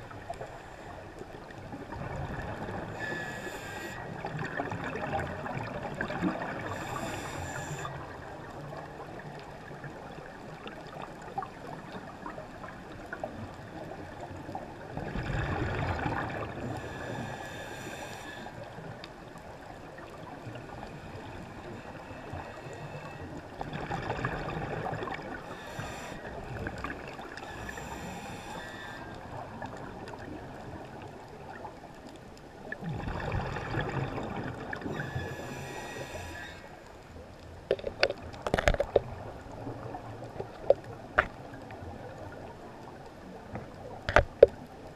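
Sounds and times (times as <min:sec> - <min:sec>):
underwater exhaled bubbles: 0:00.0 - 0:36.6, 0:37.2 - 0:44.9
steady hiss: 0:02.7 - 0:04.1, 0:06.7 - 0:08.1, 0:16.6 - 0:18.9, 0:25.4 - 0:26.6, 0:27.4 - 0:29.4, 0:35.0 - 0:36.8.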